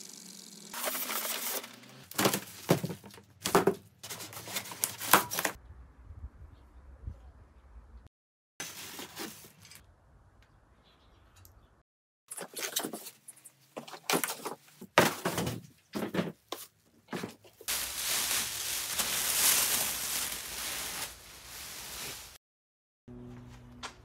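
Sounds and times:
plastic bag crinkling: 0.8 - 3.0, 17.7 - 22.4.

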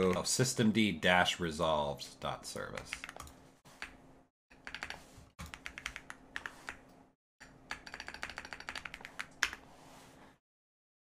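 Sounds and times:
keyboard typing: 2.8 - 9.6.

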